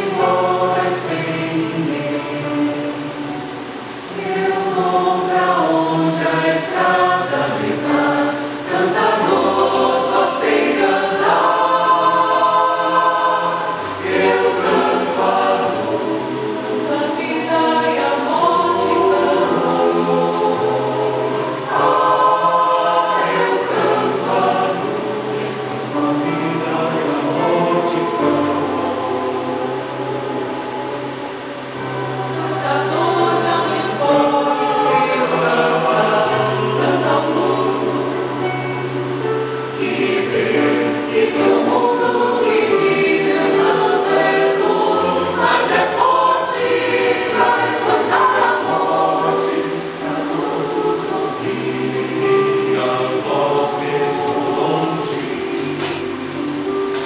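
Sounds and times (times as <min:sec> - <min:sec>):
mixed choir singing: 0:00.0 - 0:57.0.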